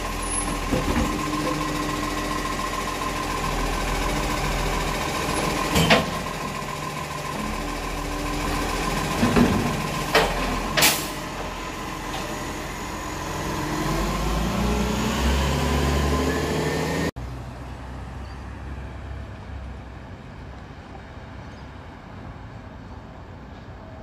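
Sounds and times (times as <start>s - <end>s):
diesel truck engine running: 0.0s - 18.0s
wheelie bin clunks: 0.1s - 1.9s, 5.3s - 6.6s, 8.4s - 12.5s.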